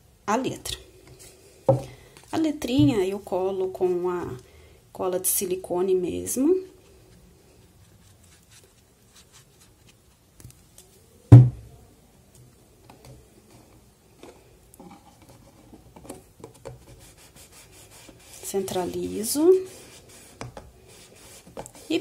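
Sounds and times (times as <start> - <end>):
object knocking on table: 1.7 - 1.9.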